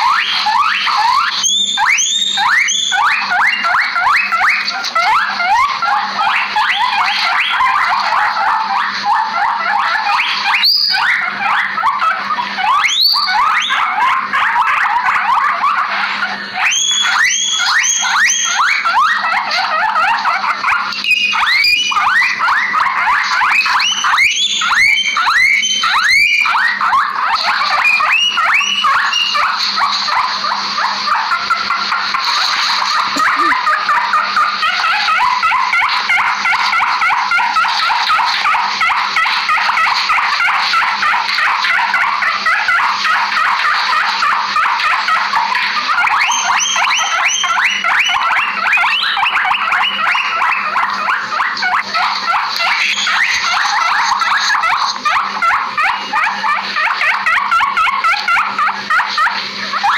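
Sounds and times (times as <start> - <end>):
guinea pigs wheeking: 0.0 - 59.9.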